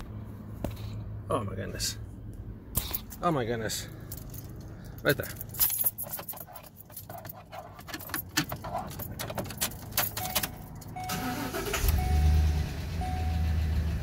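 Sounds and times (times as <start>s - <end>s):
keys jangling in ignition: 4.0s - 12.1s
car engine starting and idling: 7.1s - 14.0s.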